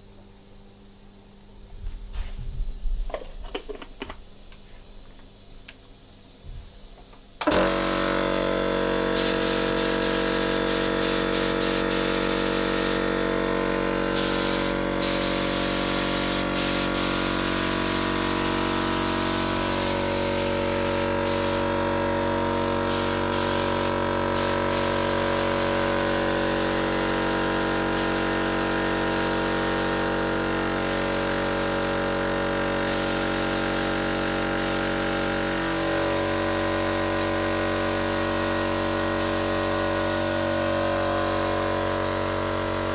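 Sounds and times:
air spray gun hissing: 7.4 - 42.9
machine hum with pitched tones: 7.4 - 42.9.

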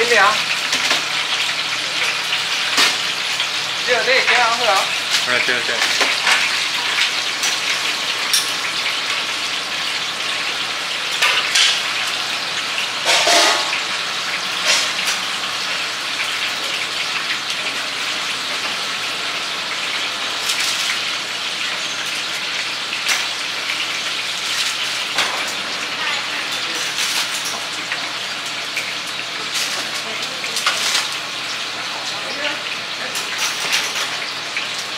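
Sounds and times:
hot oil sizzling: 0.0 - 34.9.

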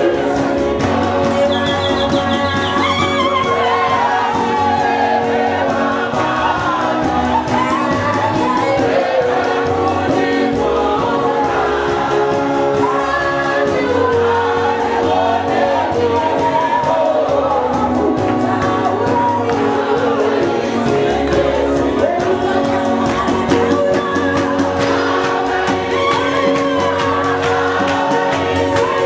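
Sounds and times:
held accompanying notes: 0.0 - 15.3
gospel group singing: 0.0 - 29.0
quick steady beat: 0.0 - 29.0.

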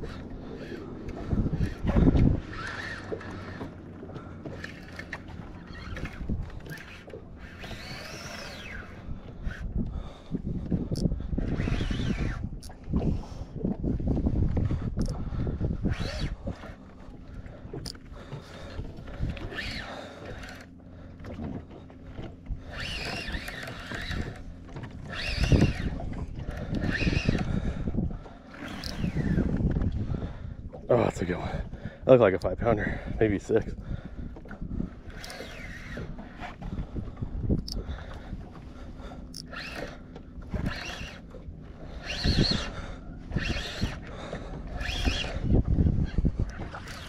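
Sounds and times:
wavering whine-like tones: 0.0 - 9.8, 11.0 - 12.8, 15.9 - 21.4, 22.1 - 27.5, 28.5 - 29.7, 35.0 - 47.0
fishing reel cranking: 0.0 - 13.4, 14.7 - 20.8, 22.1 - 27.8, 28.5 - 29.7, 32.4 - 47.0
reel drag squealing buzzes: 0.0 - 13.4, 14.6 - 47.0
water around boat: 0.0 - 47.0
wind: 0.0 - 47.0.

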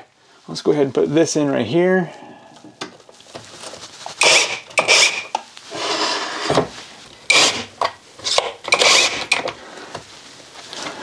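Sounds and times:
impact driver driving screws: 4.2 - 6.6, 7.3 - 9.6.

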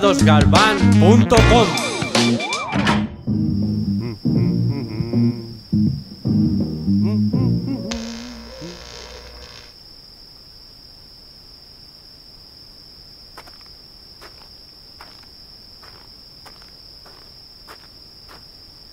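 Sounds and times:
crickets trilling: 1.8 - 18.9.

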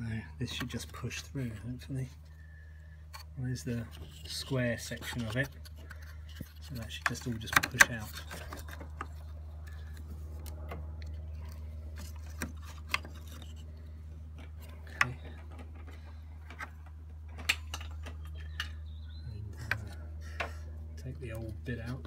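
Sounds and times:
steady low hum: 0.0 - 22.0
clicks and taps of plastic parts: 5.0 - 9.7.

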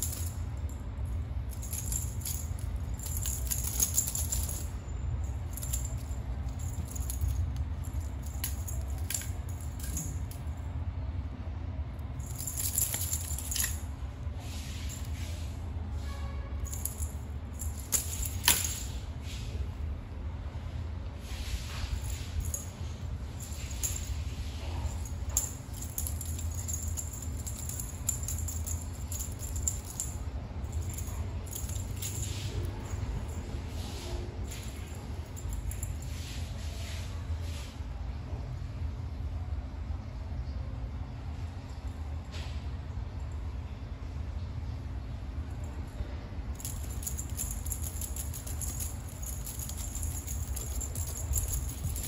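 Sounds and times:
light metallic jingling: 0.0 - 10.6, 12.2 - 15.4, 16.7 - 19.0, 21.8 - 36.4, 46.5 - 52.0
steady low rumble: 0.0 - 16.0, 16.6 - 36.2, 43.9 - 52.0
toy clicking and rattling on tiles: 1.5 - 4.7, 12.3 - 13.9, 46.6 - 52.0.

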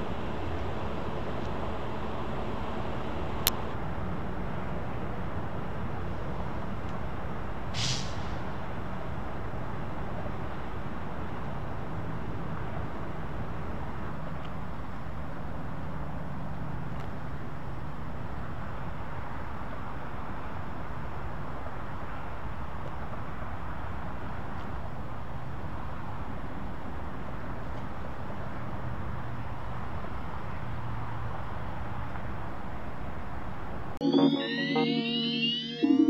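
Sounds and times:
vehicle engines idling: 0.0 - 33.3
short hiss: 7.8 - 8.4.

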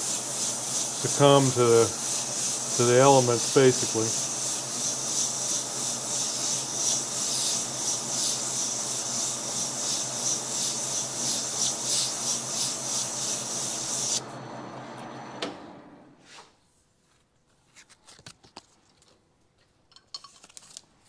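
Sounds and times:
lathe humming: 0.0 - 16.0.

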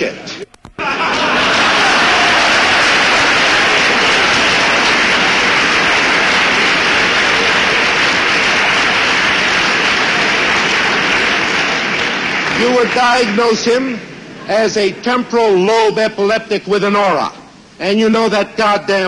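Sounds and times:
audience applauding: 0.8 - 14.0.

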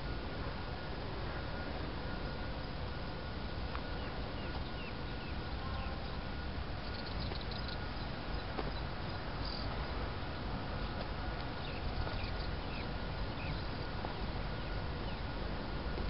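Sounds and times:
bird chirps: 3.8 - 6.2, 6.8 - 9.7, 11.6 - 13.9.

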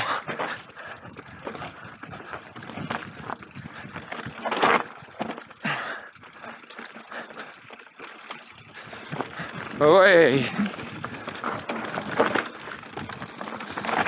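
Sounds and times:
bike rattling and knocking: 0.0 - 14.0
bike tyres rolling over rough ground: 0.0 - 14.0.

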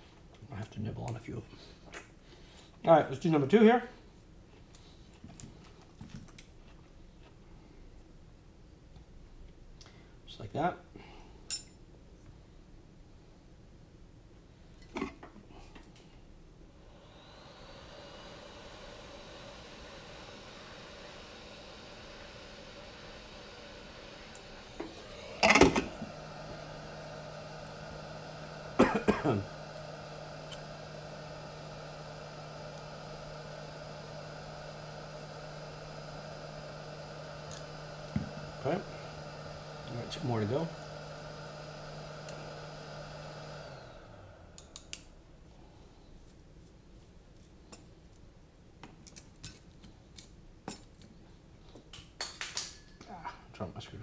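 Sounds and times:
man clearing throat: 28.8 - 29.5.

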